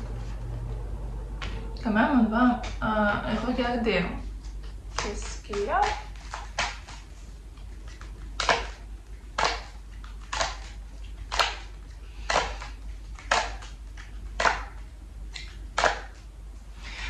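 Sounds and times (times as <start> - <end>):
steady low hum: 0.0 - 17.0
cards being shuffled: 4.2 - 16.3.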